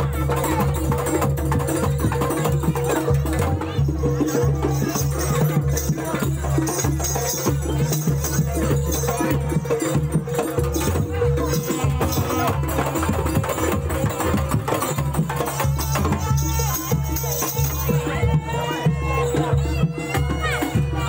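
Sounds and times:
gamelan ensemble drums and percussion: 0.0 - 21.0.

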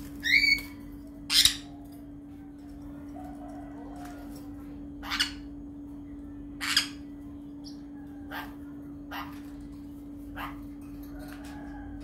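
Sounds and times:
parrot squawking: 0.2 - 1.7, 5.0 - 5.5, 6.6 - 9.6, 10.2 - 10.7.

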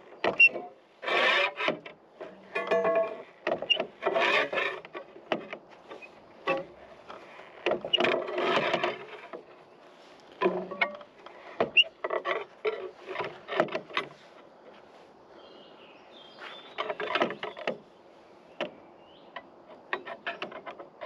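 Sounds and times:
metallic clicks and clanks: 0.2 - 6.7.

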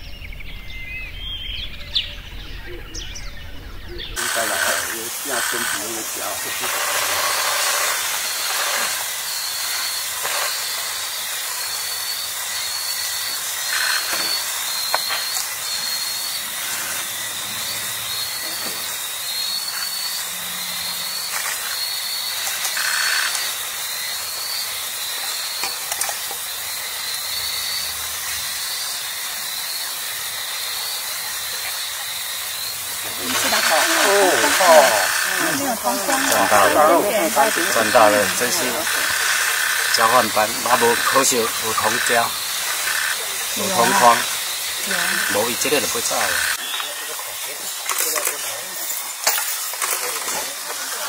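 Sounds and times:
forest ambience hiss: 0.0 - 51.0.

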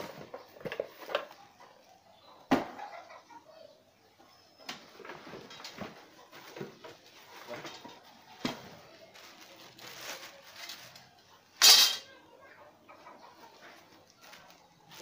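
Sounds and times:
plastic wrap crinkling: 6.3 - 11.2, 13.5 - 15.0.

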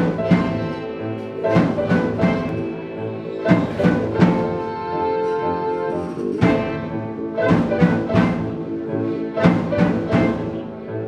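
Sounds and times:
drum kit hits and cymbals: 0.0 - 10.7
keyboard chords: 0.0 - 11.0.

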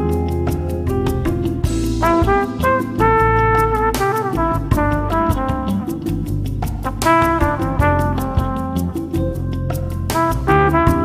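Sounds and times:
electric bass line: 0.0 - 11.0
horn melody: 1.8 - 9.4, 10.2 - 11.0.

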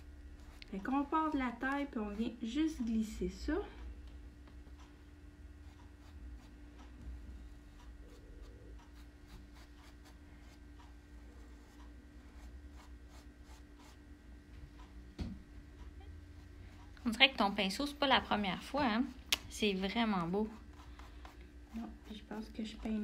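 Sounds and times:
paintbrush scratching on fabric: 0.0 - 0.7, 5.6 - 6.6, 7.4 - 10.6, 11.2 - 14.0.

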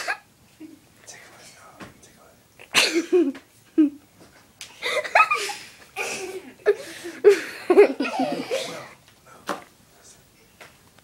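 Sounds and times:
kids giggling and snickering: 2.7 - 4.0, 4.8 - 9.0.

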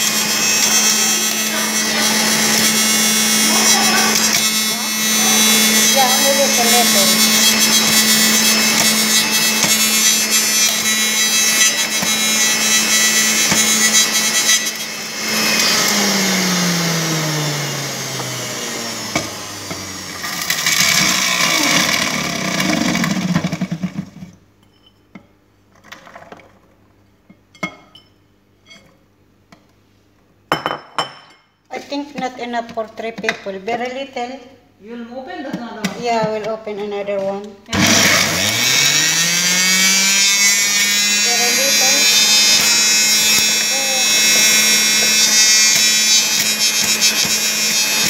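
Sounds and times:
electric juicer motor running: 0.0 - 24.2, 37.7 - 48.0.

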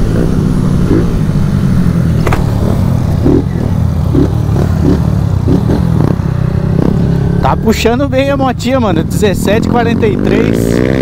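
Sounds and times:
motorcycle engines running: 0.0 - 11.0.

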